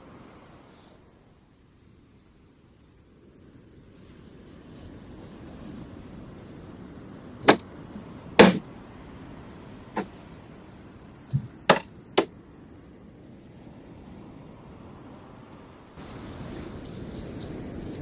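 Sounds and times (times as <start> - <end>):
wooden chest lid knocking shut: 7.4 - 7.6, 8.4 - 8.6, 11.3 - 11.9.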